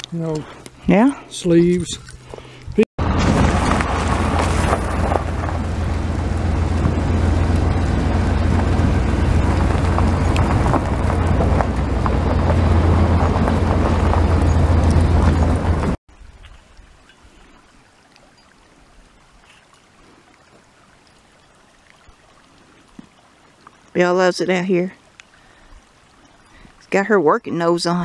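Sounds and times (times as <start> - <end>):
vehicle rumbling on gravel road: 0.0 - 16.0
faint wind: 0.0 - 28.0.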